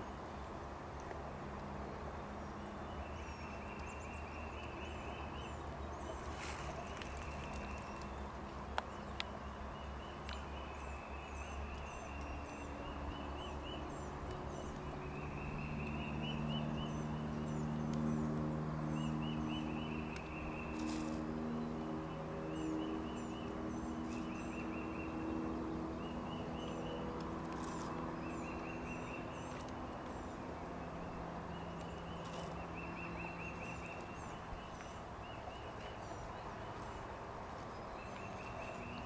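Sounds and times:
low steady hum: 0.0 - 39.0.

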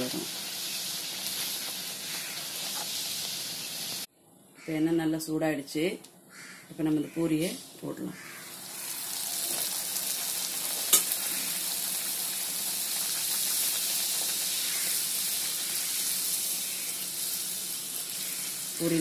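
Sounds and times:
dough sizzling in hot oil: 0.0 - 4.1, 8.2 - 19.0.

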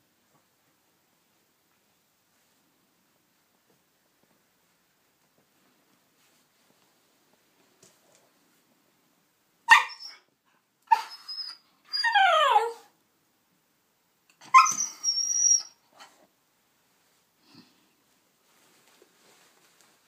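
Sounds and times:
dog barking and yelping: 9.7 - 10.3, 10.9 - 12.9, 14.4 - 16.1
dog whining: 9.7 - 10.3, 10.9 - 12.9, 14.4 - 15.8.

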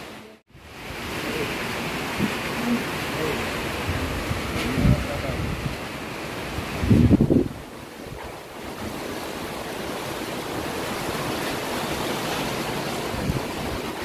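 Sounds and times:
wind on microphone: 3.6 - 9.1, 13.0 - 14.0.

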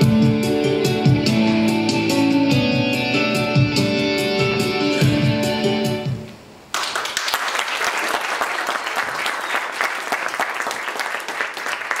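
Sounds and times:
audience applauding: 6.7 - 12.0.

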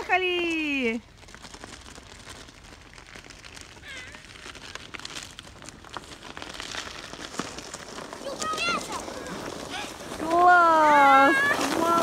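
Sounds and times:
sled sliding on snow: 0.0 - 12.0
child calling out: 3.8 - 4.5.

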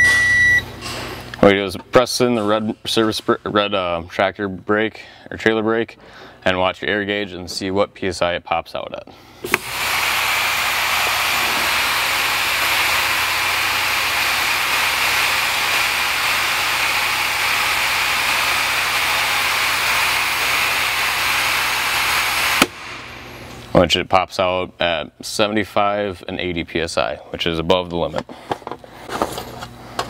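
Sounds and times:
valve click: 9.4 - 9.8
compressed air hissing: 9.4 - 23.5.

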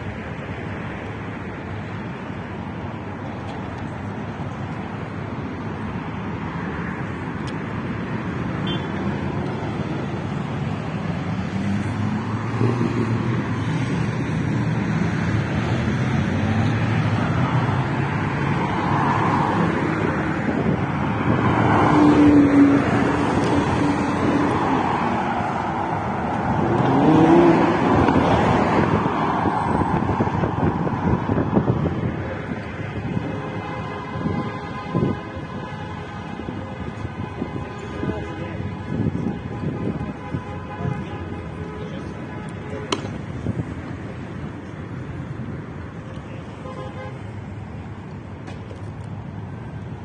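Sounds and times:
road traffic: 0.0 - 50.0
vehicles passing close: 0.0 - 50.0.

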